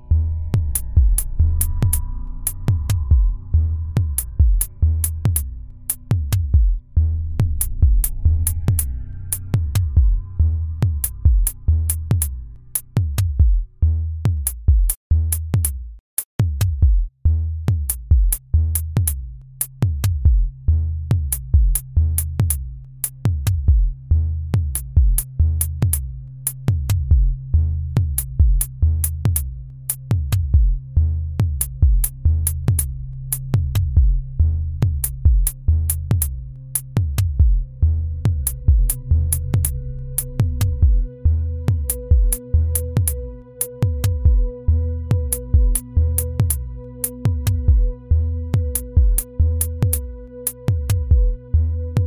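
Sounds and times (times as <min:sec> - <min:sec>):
low synthesizer note: 0:00.0 - 0:12.8, 0:37.3 - 0:52.0
drum machine beats: 0:00.1 - 0:27.4, 0:28.0 - 0:51.4.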